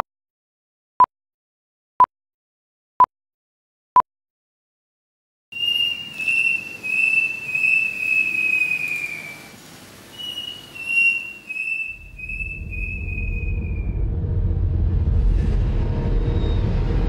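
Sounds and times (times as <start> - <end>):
high whistle-like melody: 5.6 - 14.0
low rumble: 11.9 - 17.0.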